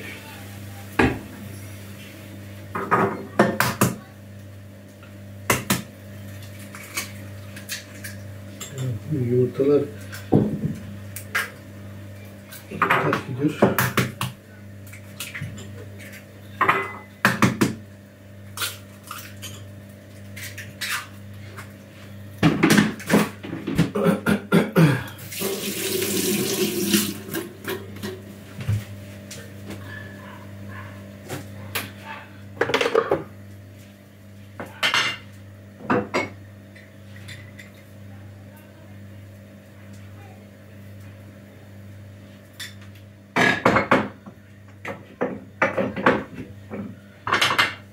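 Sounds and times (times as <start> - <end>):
tap running: 25.4 - 28.9.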